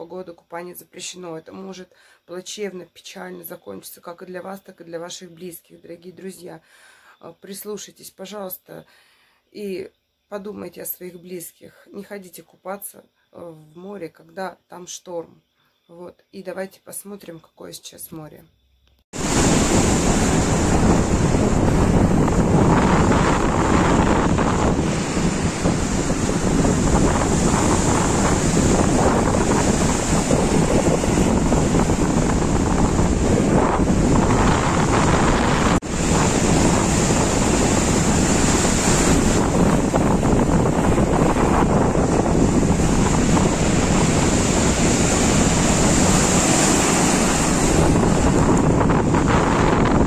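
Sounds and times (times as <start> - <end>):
surf breaking on beach: 19.2 - 50.0
wind buffeting microphone: 19.2 - 50.0.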